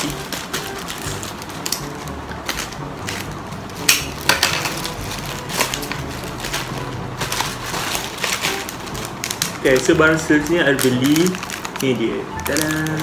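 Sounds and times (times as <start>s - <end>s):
packaging crinkling and tearing: 0.0s - 13.0s.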